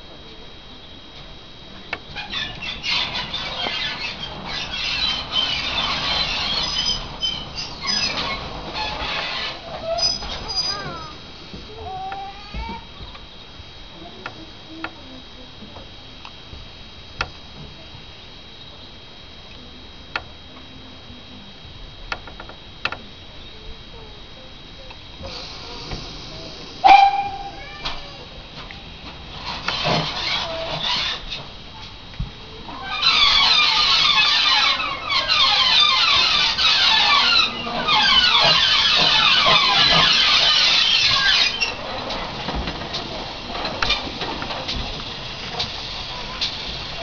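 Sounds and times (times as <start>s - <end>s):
steady faint hiss: 0.0s - 47.0s
train wheels squealing on rails: 2.0s - 11.3s, 25.2s - 28.2s, 29.3s - 31.5s, 32.6s - 42.2s.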